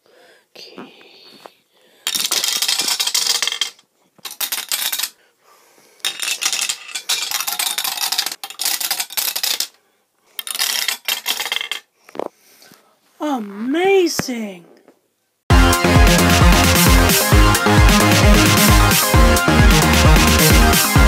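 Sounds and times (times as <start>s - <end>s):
marble rolling down tube: 2.1s - 5.1s, 6.0s - 9.8s, 10.4s - 11.9s.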